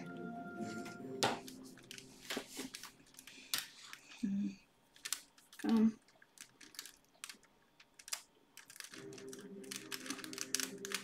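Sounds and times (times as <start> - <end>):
faint background music: 0.0 - 4.7, 8.7 - 11.0.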